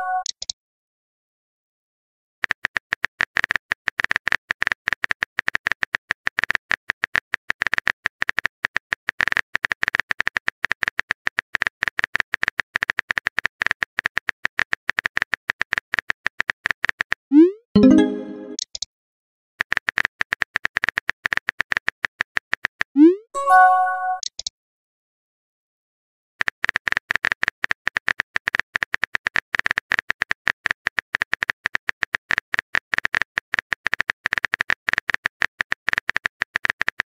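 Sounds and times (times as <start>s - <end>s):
keyboard key clicks with tones: 23.5s - 24.5s.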